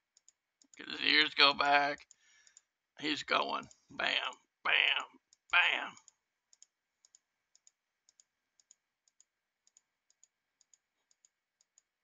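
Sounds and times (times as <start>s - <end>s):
faint mouse clicks: 0.1s - 0.8s, 2.0s - 2.7s, 5.3s - 11.9s.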